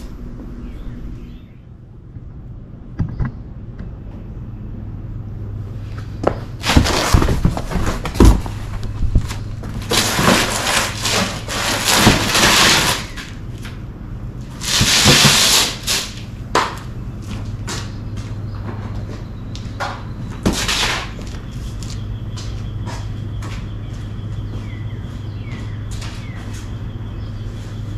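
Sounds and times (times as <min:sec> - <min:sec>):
steady low hum: 0:00.0 - 0:27.9
cardboard scraping on concrete: 0:05.9 - 0:13.8, 0:14.4 - 0:16.7, 0:20.4 - 0:21.9
cardboard thumps: 0:06.2 - 0:11.3.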